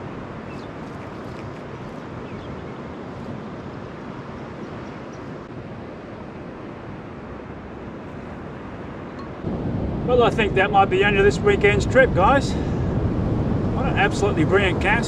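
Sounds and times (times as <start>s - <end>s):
ocean surf washing onto beach: 5.4s - 15.0s.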